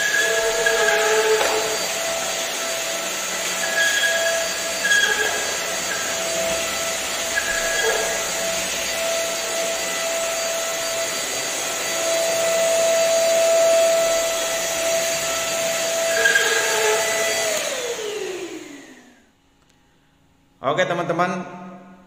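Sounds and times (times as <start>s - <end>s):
vacuum cleaner running: 0.0s - 19.3s.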